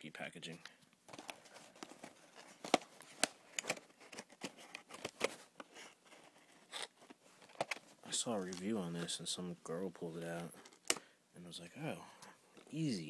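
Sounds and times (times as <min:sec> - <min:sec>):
packaging crackling and clicking: 0:01.1 - 0:08.7.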